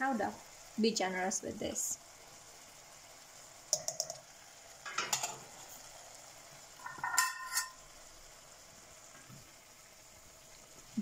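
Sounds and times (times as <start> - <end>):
faint sizzle: 0.0 - 11.0
spoon clinking on steel pot: 6.8 - 7.8
spoon scraping pot: 6.8 - 7.8.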